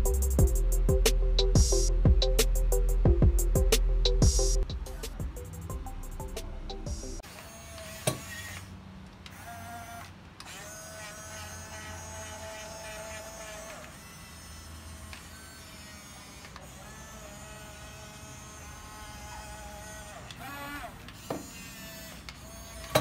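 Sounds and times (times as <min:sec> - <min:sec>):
small electric motors whining: 0:07.2 - 0:23.0.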